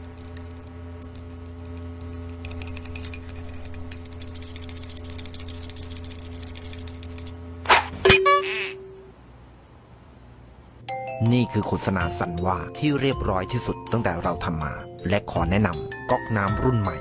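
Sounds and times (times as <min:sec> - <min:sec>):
metallic clicking and rattling: 0:00.0 - 0:07.4
faint high whine: 0:00.0 - 0:12.3
low electric hum: 0:00.0 - 0:17.0.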